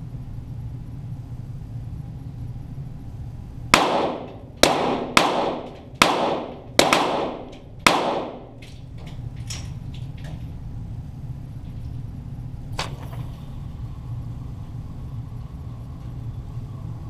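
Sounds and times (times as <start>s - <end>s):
pistol shots echoing: 3.8s - 8.8s.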